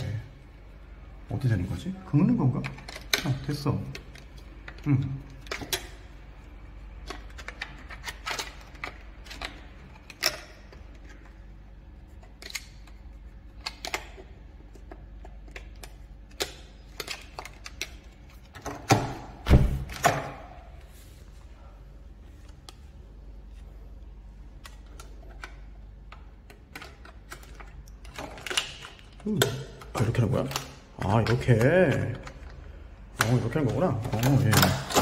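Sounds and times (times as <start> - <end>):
clicks and knocks of handling: 2.5 - 6.2, 6.9 - 19.3, 24.5 - 35.0.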